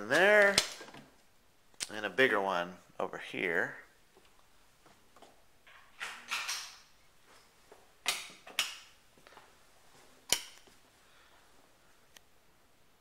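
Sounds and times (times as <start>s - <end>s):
clothes and hangers rustling: 0.0s - 1.2s, 4.2s - 11.8s.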